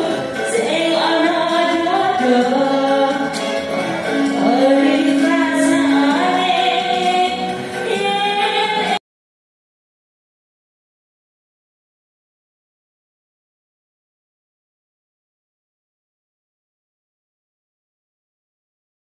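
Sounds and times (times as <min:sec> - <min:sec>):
karaoke backing track: 0:00.0 - 0:09.0
woman singing into microphone: 0:00.0 - 0:09.0.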